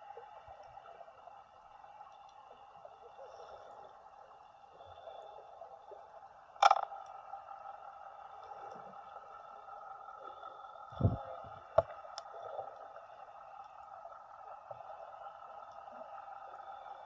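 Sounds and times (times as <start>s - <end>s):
faint steady tones: 0.0s - 17.0s.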